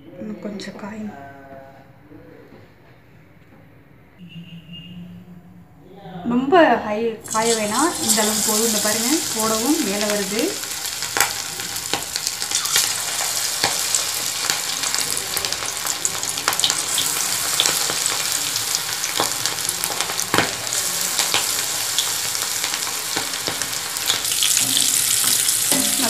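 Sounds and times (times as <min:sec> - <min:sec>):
prawns deep-frying in oil: 0:07.2 - 0:26.0
oil crackles and pops: 0:07.3 - 0:26.0.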